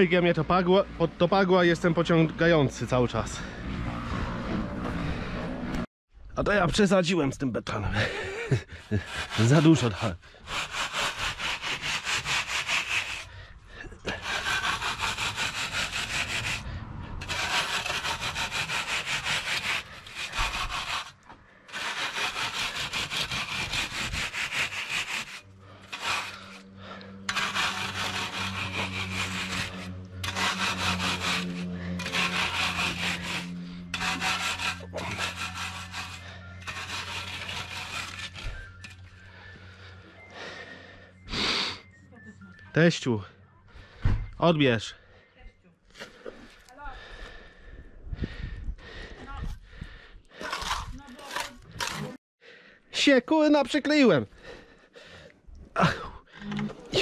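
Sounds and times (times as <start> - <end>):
screed board scraping wet concrete: 8.0 - 13.3, 14.0 - 16.6, 17.2 - 39.2, 50.3 - 52.2.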